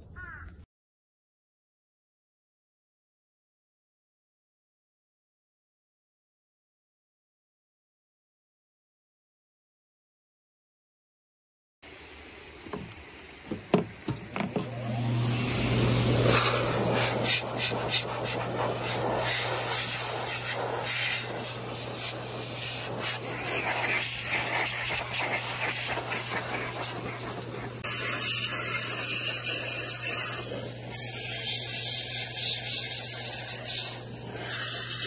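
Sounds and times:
air blower motor hum: 0:12.7 - 0:34.6
air hissing from nozzle: 0:12.7 - 0:35.0.

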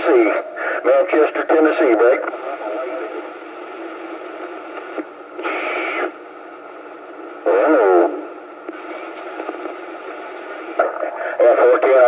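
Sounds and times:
radio static hiss: 0:00.0 - 0:12.0.

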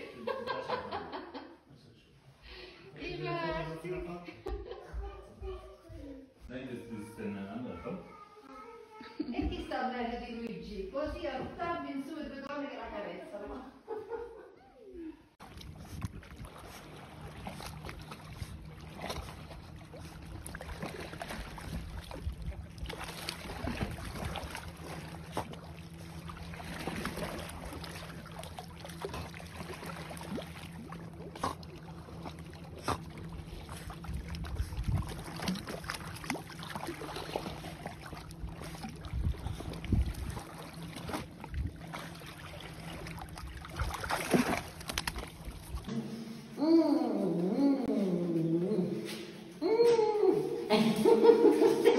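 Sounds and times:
low hum: 0:13.6 - 0:51.9
water lapping and splashing: 0:15.3 - 0:51.9.

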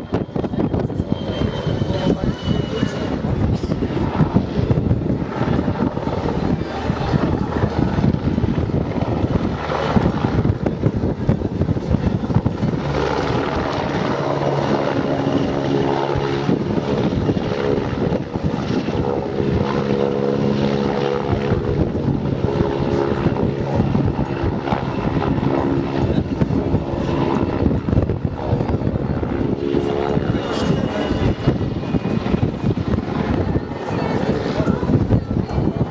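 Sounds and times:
helicopter rotor beating: 0:00.0 - 0:35.9
turbine engines running: 0:00.0 - 0:35.9.

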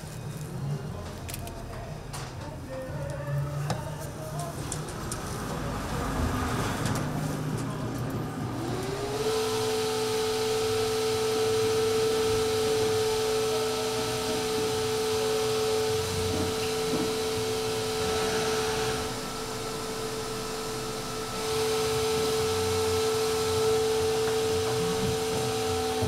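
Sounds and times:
electric fan whirring: 0:00.0 - 0:26.0.

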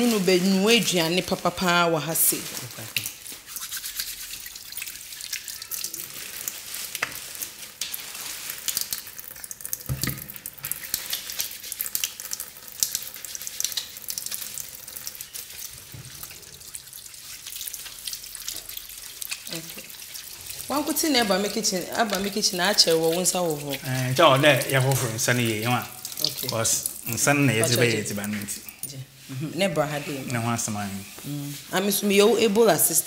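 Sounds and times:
tap water running into sink: 0:08.7 - 0:28.6
water splashing over hands: 0:17.1 - 0:28.3.

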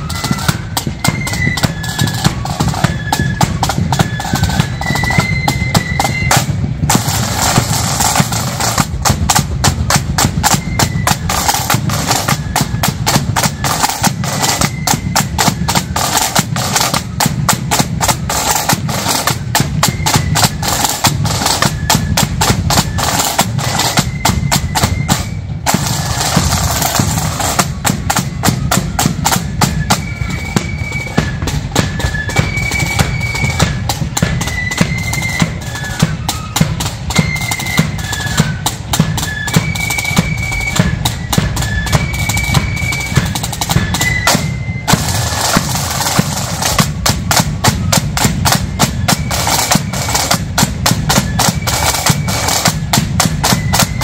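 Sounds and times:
high flute melody: 0:00.0 - 0:54.0
snare drum rolls: 0:00.0 - 0:54.0.

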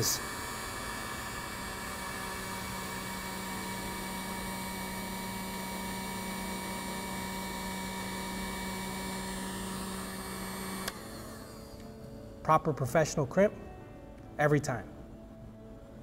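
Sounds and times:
heat gun blower hum: 0:00.0 - 0:12.7
heat gun switch click: 0:10.7 - 0:11.0.

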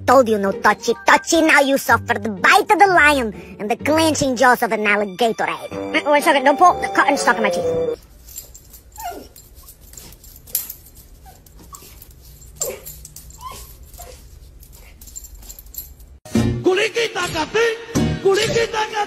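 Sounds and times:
puppy yipping and whimpering: 0:09.0 - 0:10.1, 0:11.2 - 0:12.0, 0:12.6 - 0:14.3.

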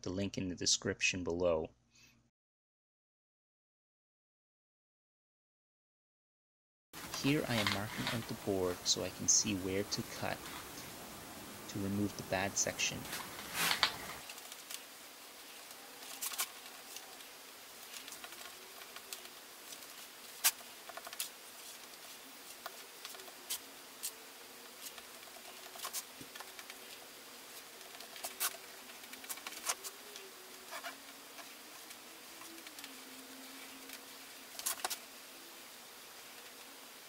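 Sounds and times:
marker pen scratching: 0:27.9 - 0:30.0, 0:30.6 - 0:31.8.

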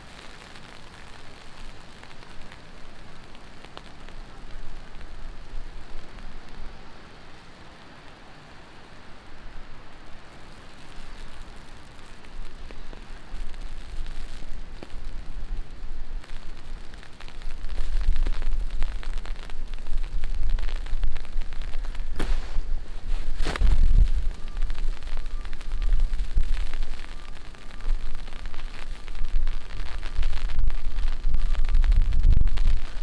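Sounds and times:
heavy rain: 0:00.0 - 0:33.0
deep low rumble: 0:17.6 - 0:33.0.

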